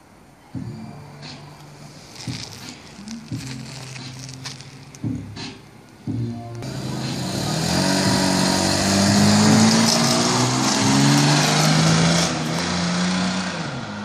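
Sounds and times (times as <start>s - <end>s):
tyres hissing on asphalt: 6.6s - 14.0s.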